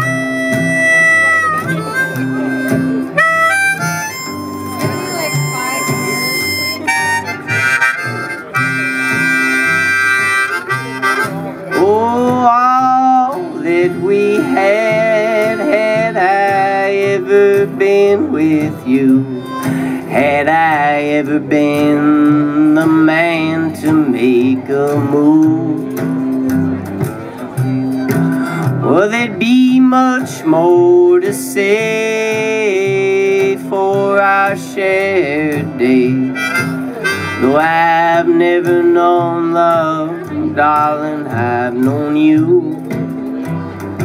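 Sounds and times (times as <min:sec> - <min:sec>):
harmonica playing: 0:00.0 - 0:12.3, 0:13.4 - 0:16.8, 0:36.2 - 0:38.0
strummed acoustic guitar: 0:00.0 - 0:44.0.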